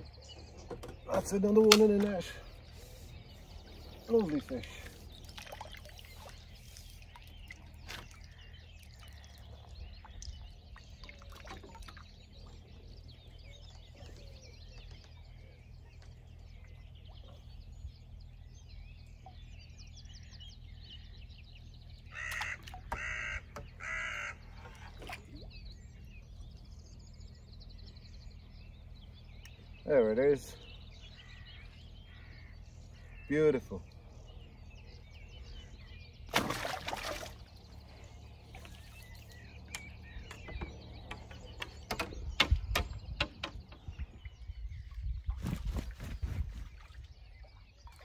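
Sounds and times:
faint songbird chirps: 0.0 - 48.0
low rumble of wind: 0.0 - 48.0
crow cawing: 22.1 - 24.4.

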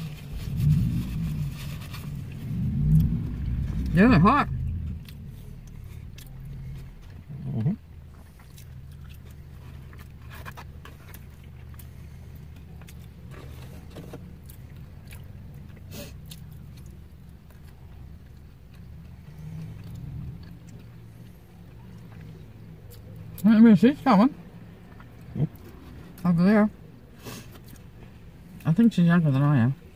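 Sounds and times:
steady low hum: 0.0 - 29.9
chewing food: 4.6 - 23.5, 24.4 - 28.8.

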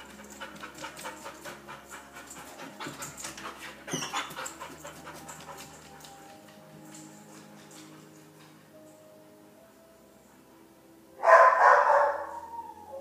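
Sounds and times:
dog panting: 0.0 - 8.6.

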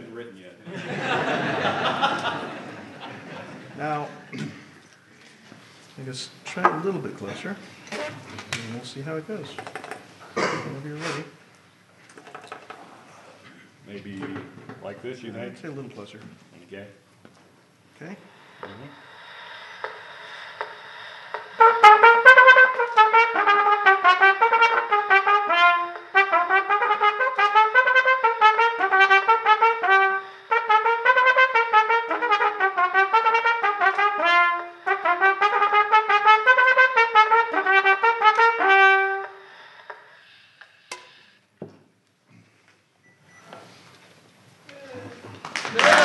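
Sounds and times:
trumpet playing quick tune: 21.6 - 39.4.

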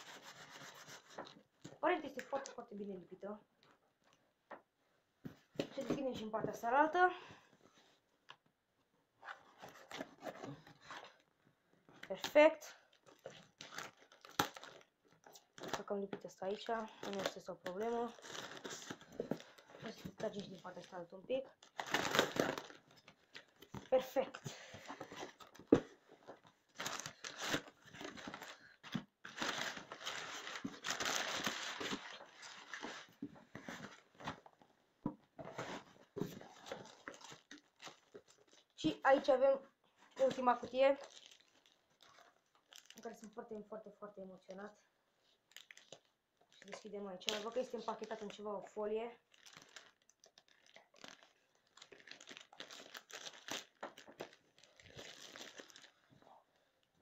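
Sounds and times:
packing paper rustling and crinkling: 12.9 - 34.6, 35.4 - 43.4, 45.5 - 48.5, 49.2 - 56.2.

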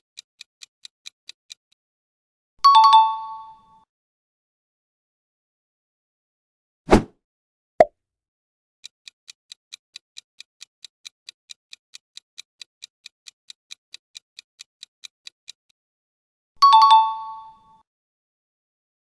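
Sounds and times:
clock ticking: 0.2 - 1.7, 8.8 - 15.7.

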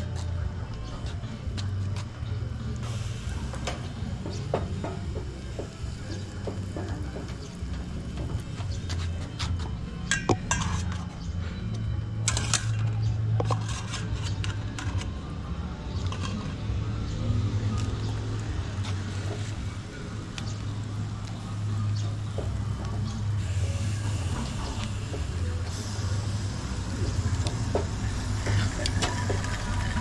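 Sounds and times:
dishes and utensils clattering: 10.0 - 11.1.

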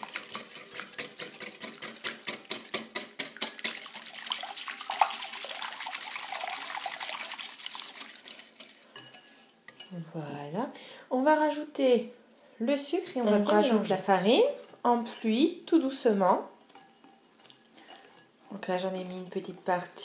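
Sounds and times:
whisk clicking against bowl: 0.0 - 4.3, 16.6 - 20.0
liquid swishing: 0.0 - 9.5, 16.5 - 19.7.

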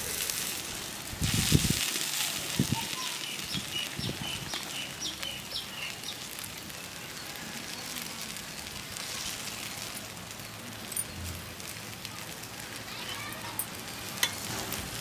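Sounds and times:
food sizzling on a griddle: 0.0 - 15.0
bird chirping: 3.1 - 6.3
metal spatulas scraping griddle: 14.2 - 15.0.

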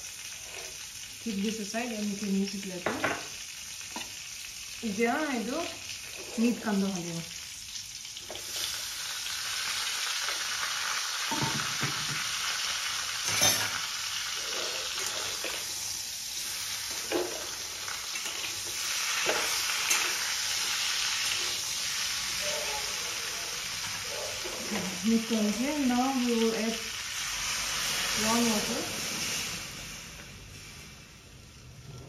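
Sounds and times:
meat sizzling in a wok: 0.0 - 32.0
metal spatula scraping a pan: 6.0 - 6.7, 13.3 - 15.8, 16.8 - 24.9.

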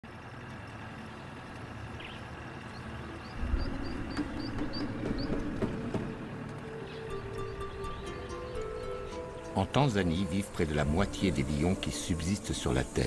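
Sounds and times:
bird chirping: 0.2 - 13.0
low rumble: 3.2 - 7.9.

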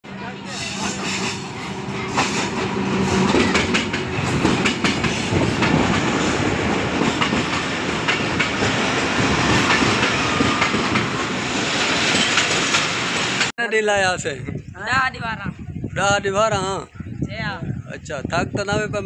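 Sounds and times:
diesel locomotive engine hum: 0.0 - 13.5
train coaches rumbling: 0.0 - 13.5
wheels clattering over rail joints: 0.8 - 13.5.

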